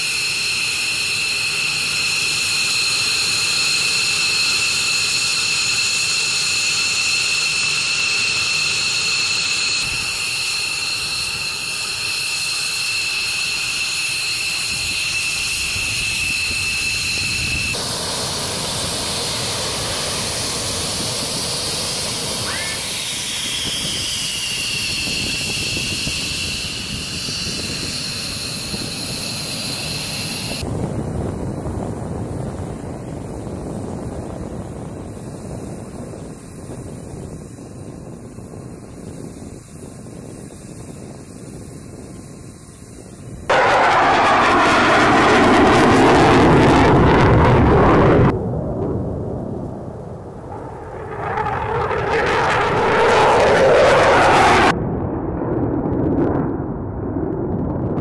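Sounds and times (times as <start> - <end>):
loud rushing hiss: 0.0 - 44.2
jet engine turbine whine: 0.0 - 54.8.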